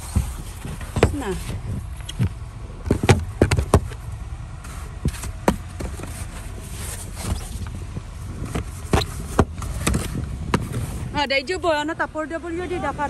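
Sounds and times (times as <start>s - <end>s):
snow brush sweeping car: 0.0s - 1.9s, 4.5s - 11.2s
steady low rumble: 0.0s - 13.0s.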